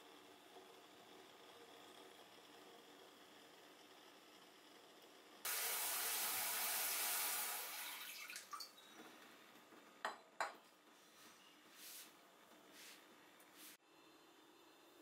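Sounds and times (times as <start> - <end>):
water running: 5.5 - 9.0.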